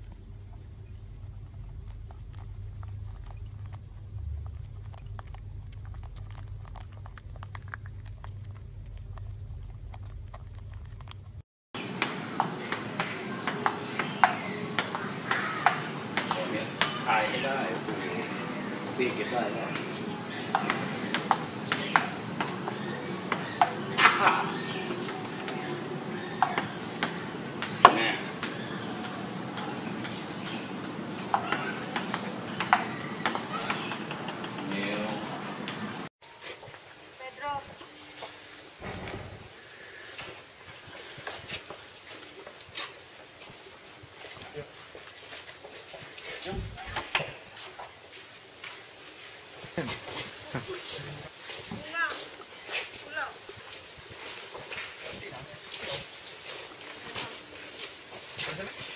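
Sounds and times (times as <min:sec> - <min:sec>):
low hum: 0:00.0 - 0:16.8
ping-pong ball hits: 0:11.9 - 0:18.6, 0:19.7 - 0:25.7, 0:26.3 - 0:35.8
table tennis ball clicking: 0:29.6 - 0:34.8.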